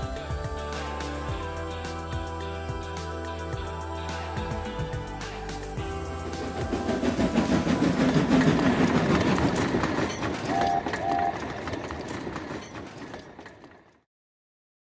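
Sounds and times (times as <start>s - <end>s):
wheels clicking on track: 5.2s - 14.1s
short high tones: 10.2s - 11.6s.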